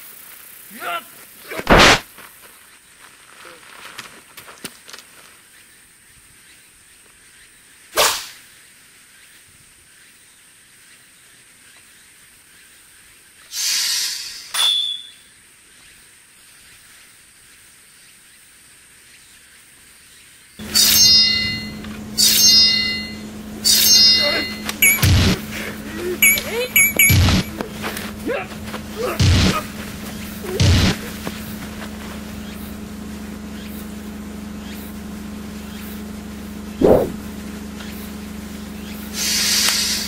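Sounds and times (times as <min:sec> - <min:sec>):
sharp hit: 0:01.7 - 0:02.0, 0:20.7 - 0:25.5, 0:26.2 - 0:27.6, 0:29.0 - 0:29.7, 0:30.6 - 0:31.1, 0:36.8 - 0:37.2
steady low tone: 0:20.6 - 0:38.9
sword swishes: 0:36.8 - 0:37.2.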